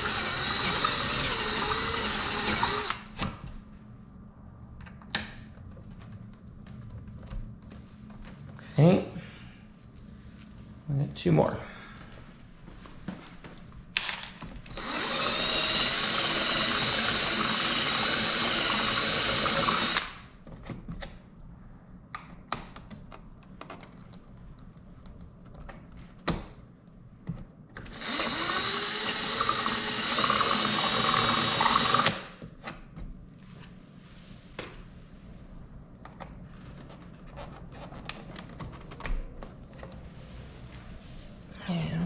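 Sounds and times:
handheld power tool running: 0:00.0 - 0:03.0, 0:14.7 - 0:20.2, 0:27.9 - 0:32.2.

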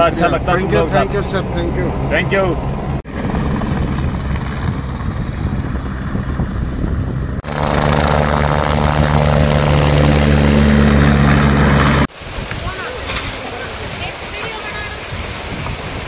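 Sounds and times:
helicopter rotor and engine: 0:00.2 - 0:12.1.

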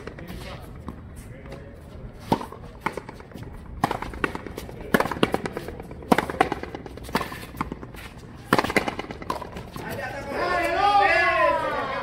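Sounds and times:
ball struck by tennis rackets: 0:02.2 - 0:09.8.

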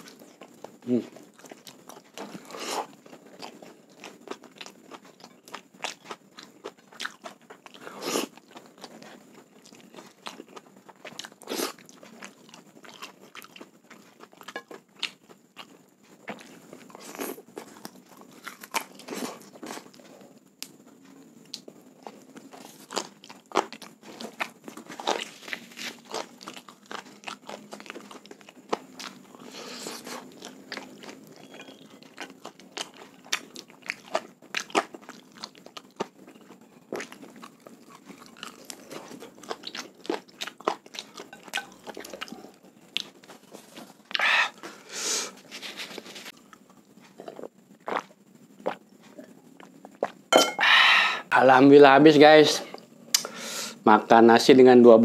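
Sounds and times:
man chewing food: 0:00.0 - 0:51.3.

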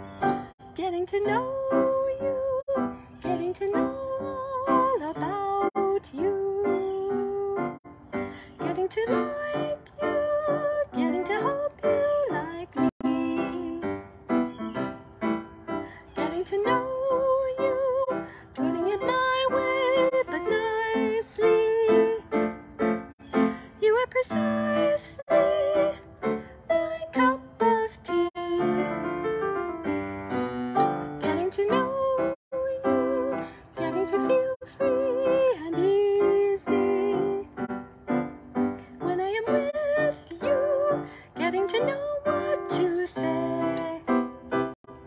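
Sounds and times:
woman singing: 0:00.0 - 0:07.8, 0:08.5 - 0:14.1, 0:16.0 - 0:22.6, 0:23.4 - 0:29.4, 0:31.1 - 0:37.7, 0:38.6 - 0:45.0
instrumental accompaniment: 0:28.6 - 0:32.3.

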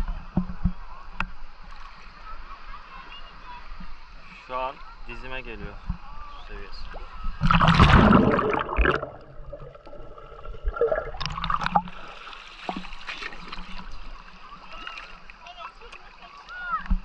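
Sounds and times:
sea water sloshing and gurgling: 0:06.7 - 0:17.0.

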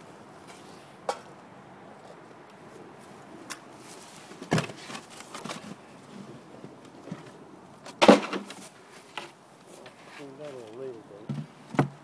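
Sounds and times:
wooden hive parts knocking: 0:07.9 - 0:08.6, 0:11.2 - 0:12.0.

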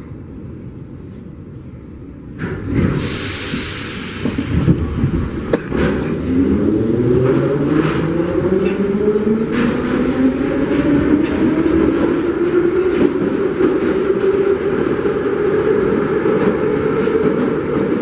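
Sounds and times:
air hiss: 0:02.9 - 0:05.5.

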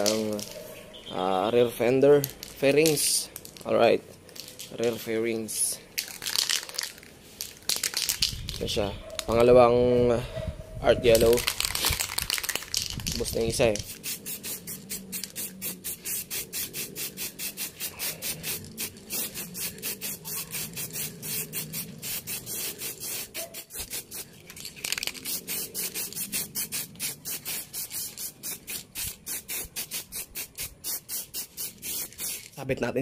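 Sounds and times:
aerosol spray can hissing: 0:13.8 - 0:24.4, 0:25.0 - 0:32.6.

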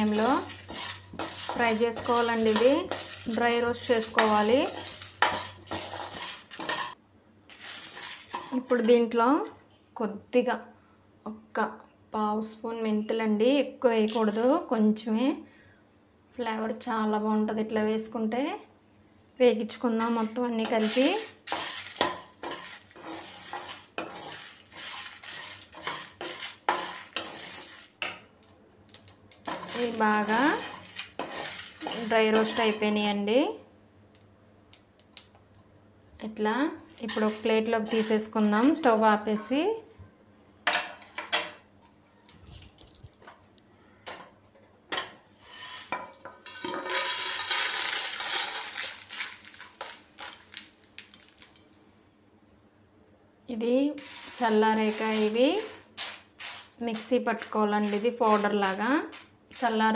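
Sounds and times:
seeds rattling onto metal plate: 0:00.0 - 0:08.9, 0:14.1 - 0:14.6, 0:20.6 - 0:33.4, 0:37.0 - 0:39.0, 0:45.6 - 0:51.8, 0:54.0 - 0:59.8
spoon scraping dry grains in pan: 0:00.0 - 0:09.1, 0:14.1 - 0:14.7, 0:20.0 - 0:28.2, 0:29.0 - 0:33.4, 0:37.0 - 0:39.6, 0:45.3 - 0:51.6, 0:54.0 - 0:59.8.

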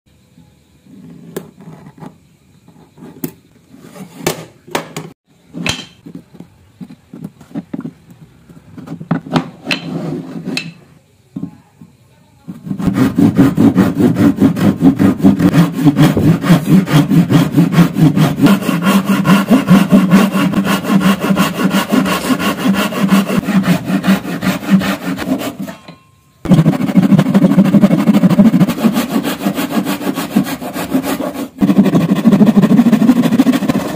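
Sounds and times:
hand saw cutting wood: 0:12.6 - 0:25.8, 0:26.5 - 0:33.9.

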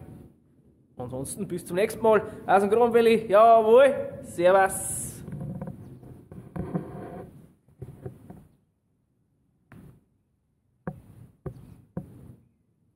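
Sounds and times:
sharp knocks: 0:10.8 - 0:12.4.

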